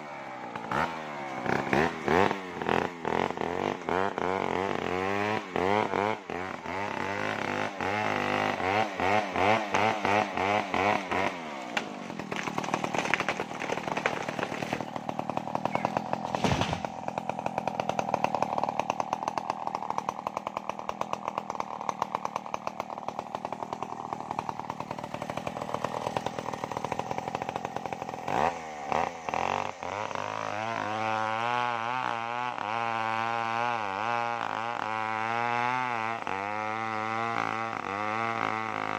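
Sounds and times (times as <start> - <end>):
chainsaw cutting wood: 0.0 - 38.9
chainsaw running: 0.0 - 38.9.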